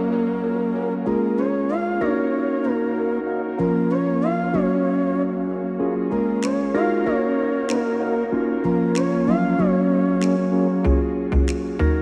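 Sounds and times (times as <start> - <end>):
slow gliding melody over chords: 0.0 - 12.0.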